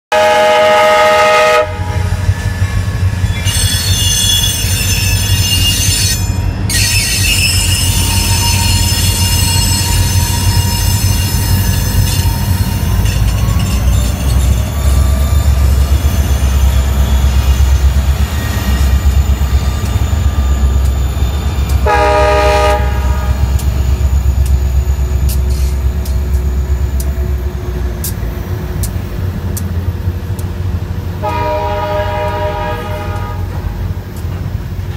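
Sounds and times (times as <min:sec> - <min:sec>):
train air horn: 0:00.1 - 0:02.1, 0:21.8 - 0:23.6, 0:31.2 - 0:33.7
freight train rumble: 0:00.1 - 0:34.9
wheels squealing: 0:02.2 - 0:21.9.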